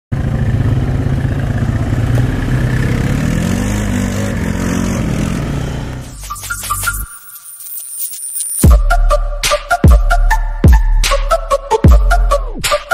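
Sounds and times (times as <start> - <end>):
atv engine running: 0.1 - 6.1.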